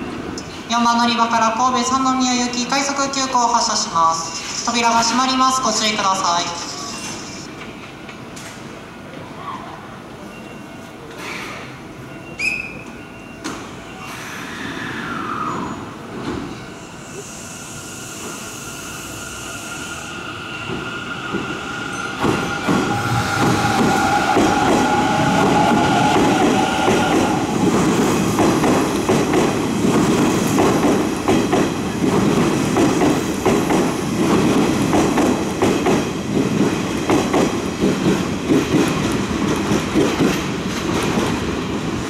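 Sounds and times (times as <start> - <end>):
electric train passing: 14.0 - 42.0.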